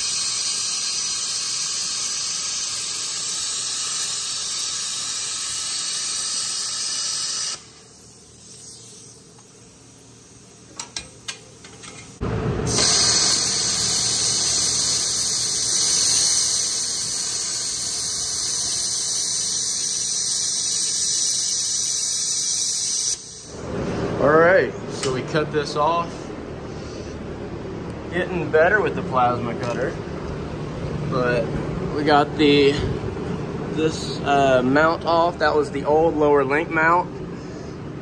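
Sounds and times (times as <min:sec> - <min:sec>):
plasma cutter hissing: 0:00.0 - 0:11.1, 0:11.9 - 0:23.6.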